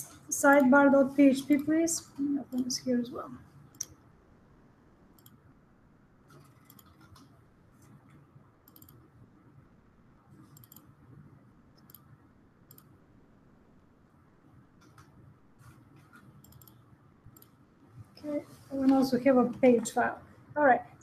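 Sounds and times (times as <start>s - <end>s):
low room hum: 0.0s - 21.0s
computer keys and mouse clicks: 0.4s - 0.8s, 3.7s - 4.0s, 5.2s - 5.4s, 6.3s - 9.1s, 10.4s - 11.0s, 11.7s - 13.0s, 14.8s - 15.2s, 16.0s - 17.6s.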